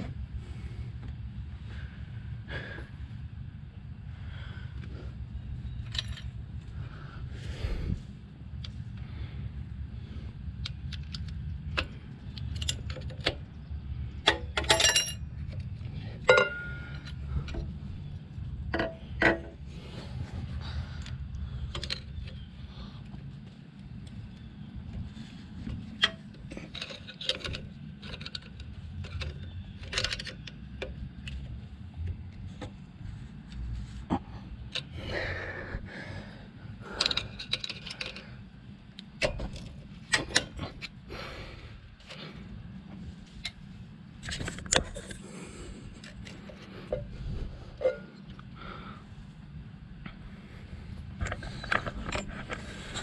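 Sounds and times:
steady low hum: 0.0s - 53.0s
metal clicks and clinks: 5.8s - 6.4s, 10.6s - 13.5s, 14.2s - 17.7s, 26.0s - 31.4s, 37.0s - 38.4s, 51.2s - 53.0s
metal covers scraping: 46.3s - 48.3s.

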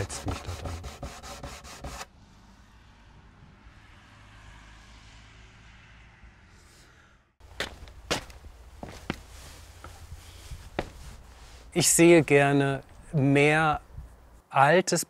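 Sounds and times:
sharp footsteps: 7.4s - 11.8s.

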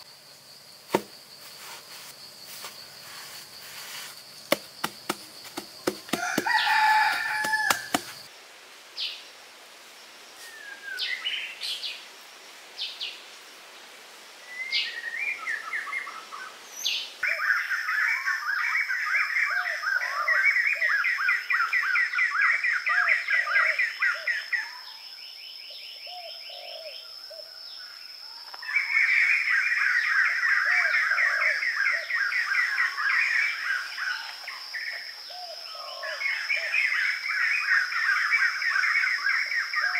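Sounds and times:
birds calling and trilling: 0.9s - 8.3s, 25.7s - 39.9s.

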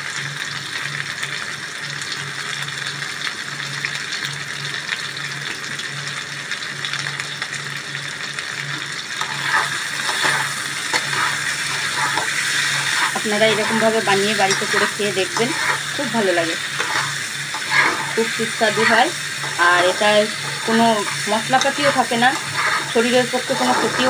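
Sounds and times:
food sizzling in oil: 0.0s - 24.0s
metal spatula scraping: 9.2s - 24.0s.

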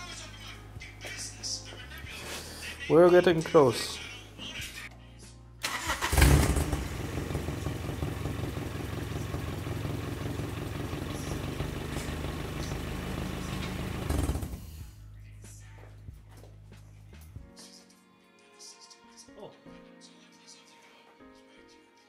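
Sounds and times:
car engine starting and idling: 5.6s - 14.8s.

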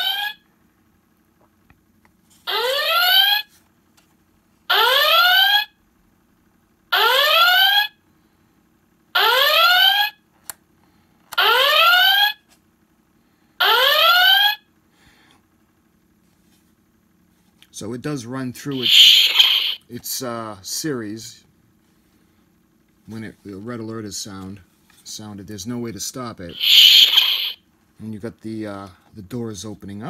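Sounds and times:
alert klaxon whoops from small speaker: 0.0s - 0.4s, 2.5s - 3.5s, 4.7s - 5.7s, 7.0s - 8.0s, 9.2s - 10.2s, 11.4s - 12.4s, 13.6s - 14.6s, 18.7s - 19.8s, 26.5s - 27.6s.

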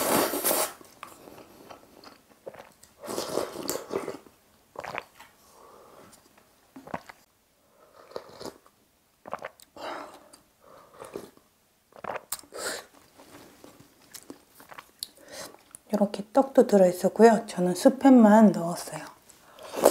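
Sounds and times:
slurping broth: 0.0s - 6.2s
chewing: 14.0s - 15.8s.

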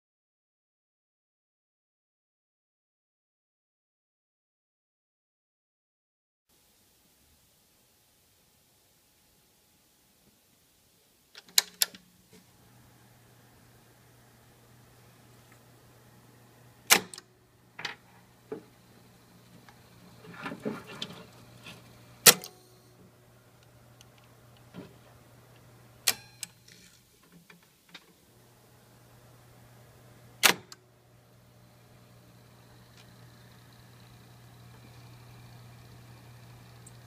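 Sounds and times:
low steady hum: 6.8s - 27.3s, 28.2s - 37.0s
tape deck solenoid clacking: 16.9s - 18.0s, 20.2s - 22.6s, 26.0s - 27.0s, 30.4s - 30.8s.

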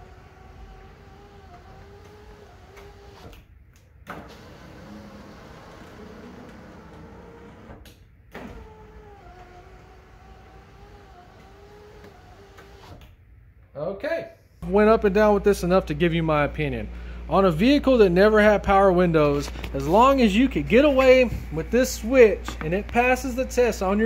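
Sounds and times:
electric window motor whine: 0.0s - 3.4s, 4.1s - 13.1s.

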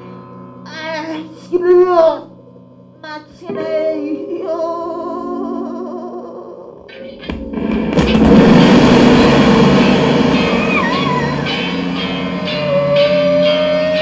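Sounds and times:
person singing with vibrato: 3.0s - 6.9s
low held drone: 7.0s - 14.0s.

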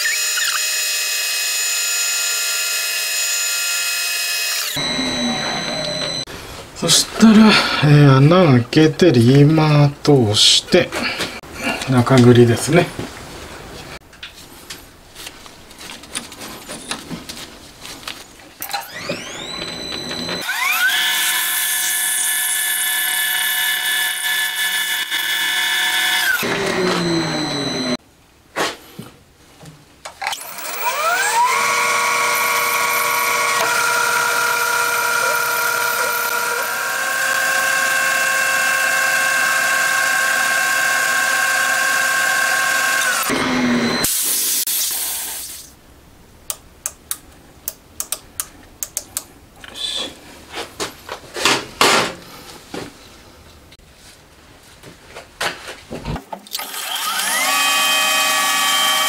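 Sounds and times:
metal lathe whining: 0.0s - 6.3s, 18.6s - 28.0s, 30.3s - 44.1s, 56.6s - 59.0s.

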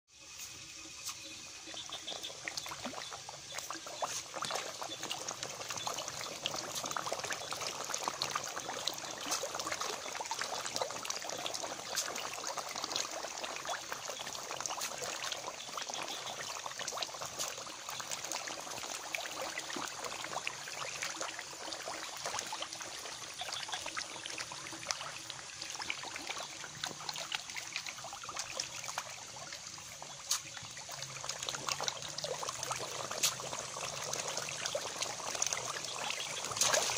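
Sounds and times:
fish splashing at water surface: 29.8s - 36.9s.

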